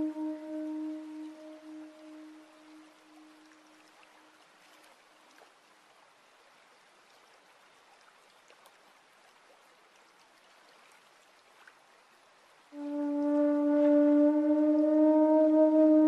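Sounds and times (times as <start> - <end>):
water trickling over stones: 0.0 - 15.2
water drips and splashes: 0.0 - 16.0.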